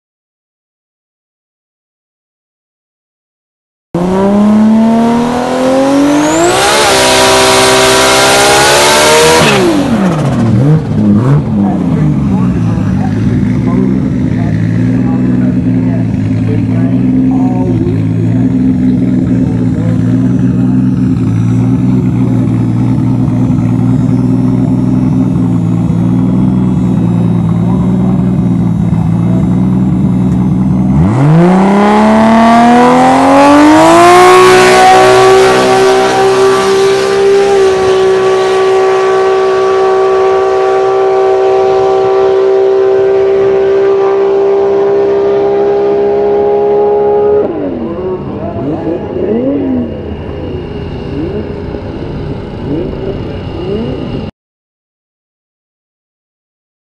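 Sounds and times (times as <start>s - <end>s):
car engine revving at high pitch: 4.0s - 54.3s.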